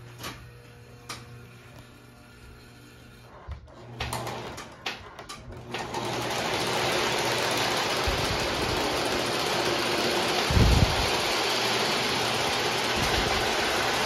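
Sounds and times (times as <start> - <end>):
model train whirring on track: 5.8 - 14.0.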